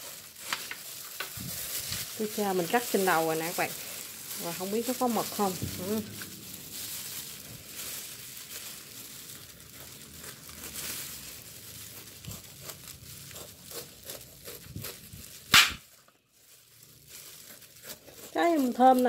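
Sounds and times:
plastic gloves crinkling: 0.0s - 19.0s
knife cutting pineapple rind: 11.9s - 15.8s, 17.4s - 19.0s
sharp crack of rind: 13.4s - 16.0s.

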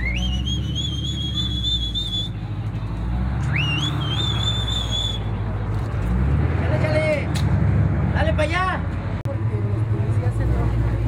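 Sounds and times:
high shrill whistle: 0.0s - 2.4s, 3.5s - 5.4s
idling vehicles rumble: 0.0s - 11.0s.

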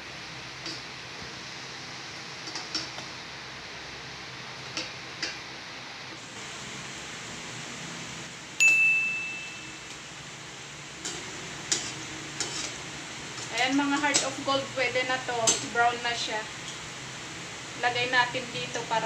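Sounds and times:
deep-frying in hot oil: 0.0s - 19.0s
ringing metallic strike: 8.6s - 9.9s
metal tongs clicking on pot: 13.4s - 14.4s, 15.4s - 15.7s.

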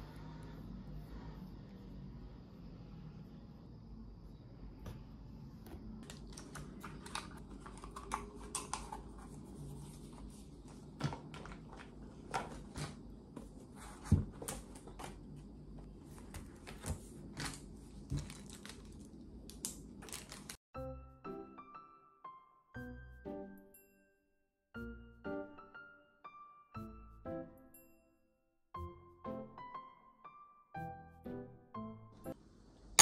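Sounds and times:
low room hum: 0.0s - 20.6s
paper and packaging rustling: 6.0s - 15.3s, 16.0s - 20.6s
music: 20.7s - 32.4s.

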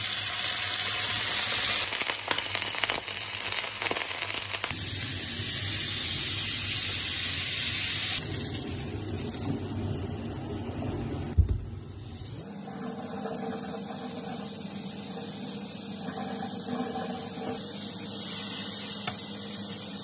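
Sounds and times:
beef sizzling: 0.0s - 10.6s, 11.8s - 20.0s.

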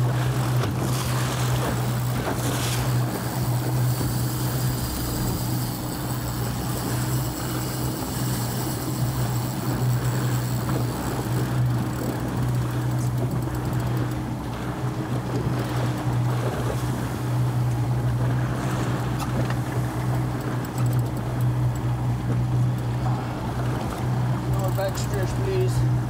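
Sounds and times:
boat engine humming: 0.0s - 26.0s
water rushing along hull: 0.0s - 26.0s
wind on microphone: 0.7s - 9.1s.

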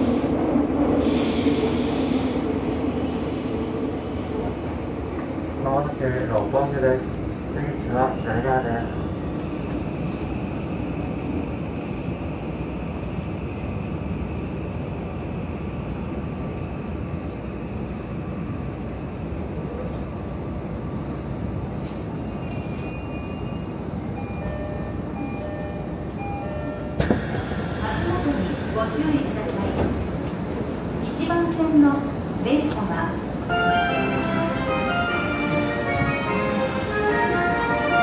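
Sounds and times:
train wheels rumbling on rail: 0.0s - 38.0s.

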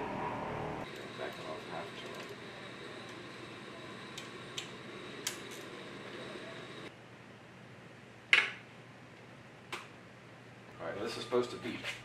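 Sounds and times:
steady shop hum: 0.0s - 7.0s.

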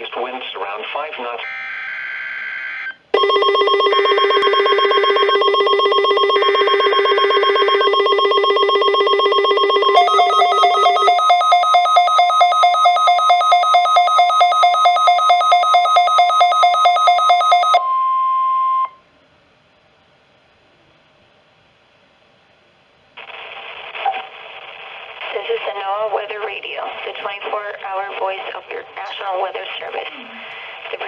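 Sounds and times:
fast-pulsing electronic alert beep: 3.2s - 17.8s.

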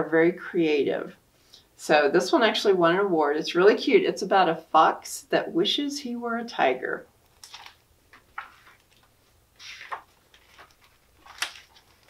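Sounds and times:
book pages rustling: 7.3s - 12.0s.

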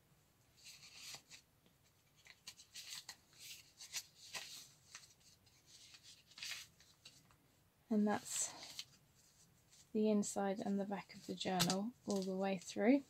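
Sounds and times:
paper pages turning: 0.6s - 7.4s, 8.2s - 9.9s, 11.1s - 12.8s.

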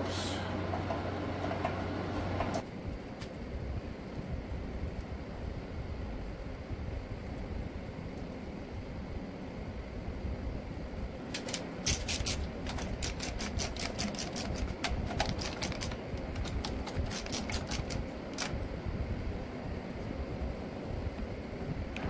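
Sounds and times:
low background hum: 0.0s - 22.0s
hand ratchet clicking: 11.4s - 18.5s.

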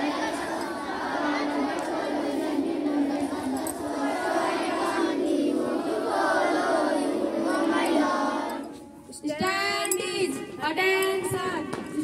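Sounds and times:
children singing in unison: 0.0s - 9.1s.

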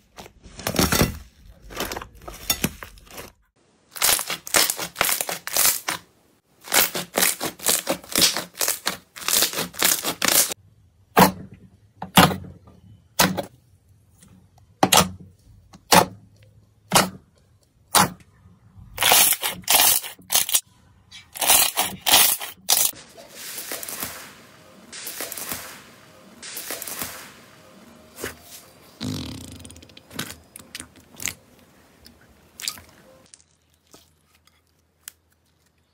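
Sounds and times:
slime popping and crackling: 4.0s - 6.0s, 6.7s - 10.6s.

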